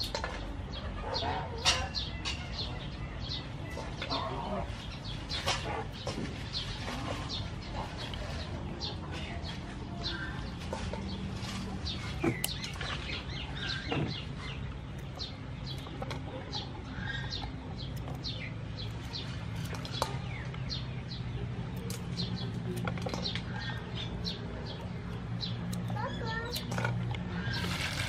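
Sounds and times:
small birds chirping: 0.0s - 28.0s
scissors snipping stalks: 11.9s - 12.9s, 17.3s - 20.8s, 21.6s - 28.0s.

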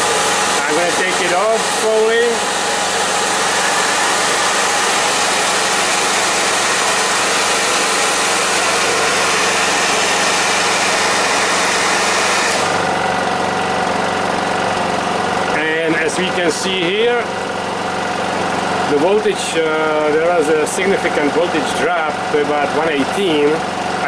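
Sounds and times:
hair dryer rushing: 0.0s - 14.8s
generator engine running: 0.0s - 24.0s.

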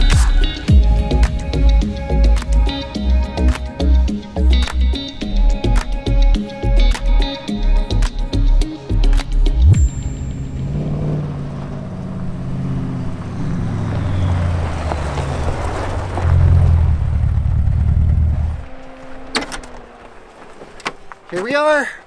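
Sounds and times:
car engine running: 9.5s - 21.3s
tyres crunching on gravel: 9.9s - 22.0s.

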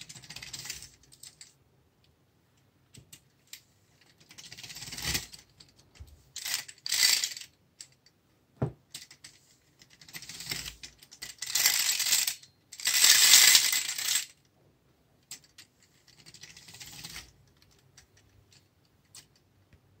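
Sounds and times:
clockwork toy whirring and rattling: 0.0s - 1.0s, 4.1s - 5.5s, 9.0s - 14.3s, 15.3s - 17.8s.

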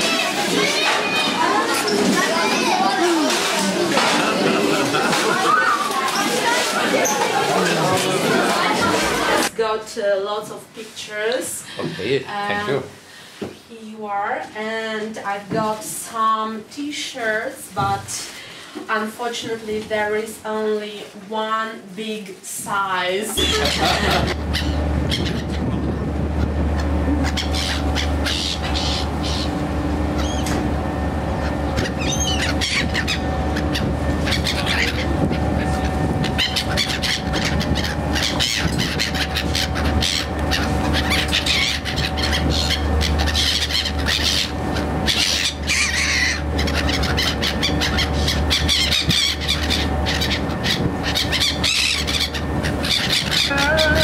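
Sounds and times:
gulls calling: 0.0s - 9.5s, 23.2s - 54.0s
steady low drone: 23.4s - 54.0s.

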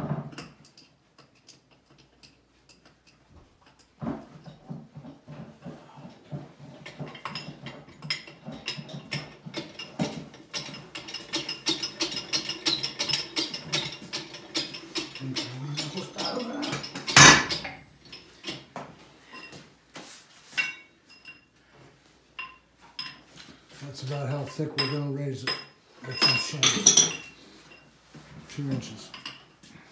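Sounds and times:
metal parts clinking and knocking: 6.9s - 18.7s, 24.8s - 27.4s.

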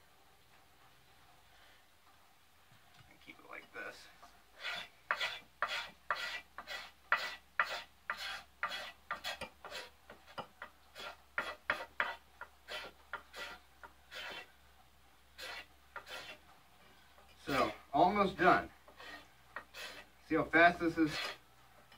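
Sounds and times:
knife scraping wood: 4.6s - 14.5s, 15.3s - 16.5s, 17.3s - 17.8s, 18.4s - 21.9s.

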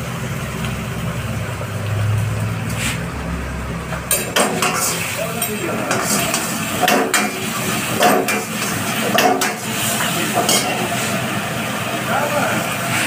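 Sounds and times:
metal ladle scraping a wok: 1.3s - 3.2s
hiss of frying: 4.4s - 13.0s.

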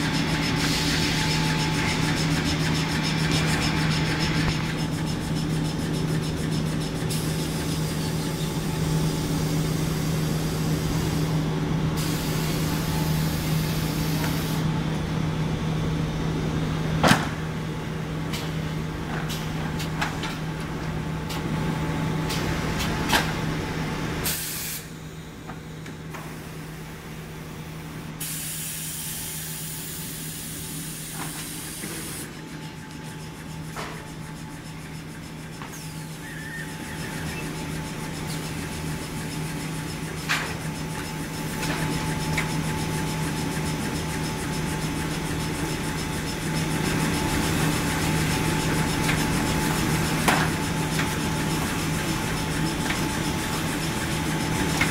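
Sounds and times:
compressed-air hiss: 12.0s - 14.6s, 24.2s - 24.9s, 28.2s - 32.3s
machine hum: 32.3s - 54.9s.

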